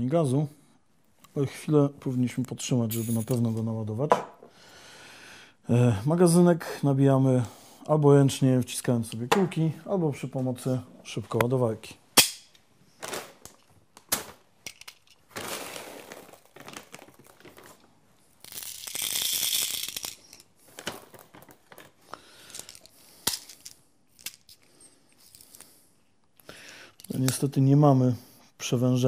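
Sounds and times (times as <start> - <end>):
plastic bag rustling: 12.9 - 18.4, 20.0 - 22.9
small clicks of pellets loading: 18.4 - 20.5, 21.4 - 25.7.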